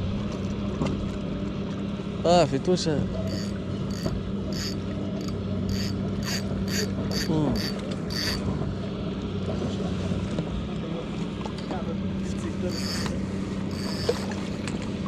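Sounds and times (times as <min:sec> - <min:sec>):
steady low hum: 0:00.0 - 0:15.0
fishing reel gearing ticking: 0:03.2 - 0:08.4, 0:12.7 - 0:14.3.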